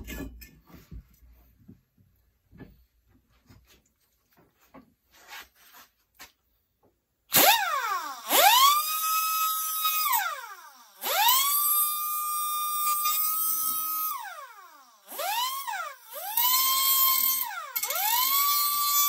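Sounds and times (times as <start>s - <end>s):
cutoff wheel grinding metal: 7.3s - 19.0s
pneumatic die grinder whining: 7.3s - 19.0s.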